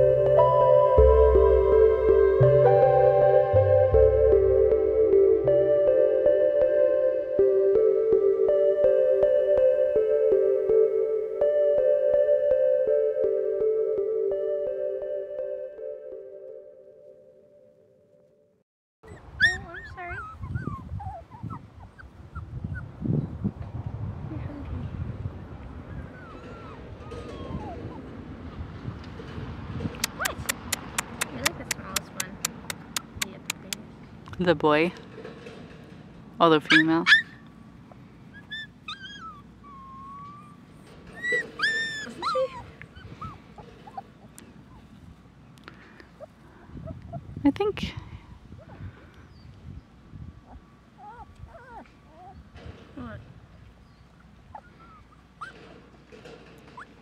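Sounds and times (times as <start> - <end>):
puppies whimpering: 19.0 - 22.9, 25.8 - 28.1, 36.7 - 37.4, 38.3 - 45.0, 50.4 - 52.5, 53.8 - 57.0.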